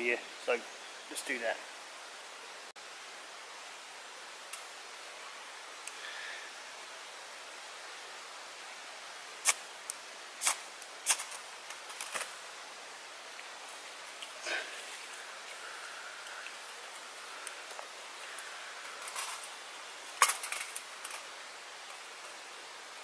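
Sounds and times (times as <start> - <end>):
soft rustle: 13.2 - 22.5.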